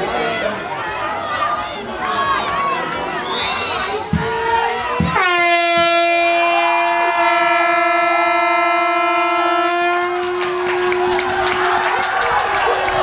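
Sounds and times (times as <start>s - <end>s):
air horn long blast: 5.1s - 11.7s.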